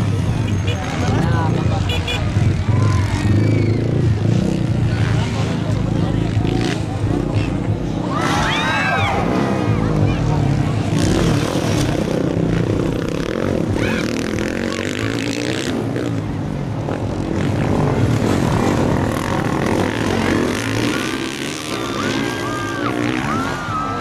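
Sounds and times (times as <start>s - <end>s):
motocross bikes revving: 0.0s - 24.0s.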